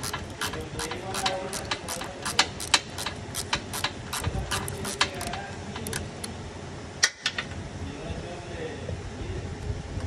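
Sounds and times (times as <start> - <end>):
metallic tool clicks: 0.0 - 6.3.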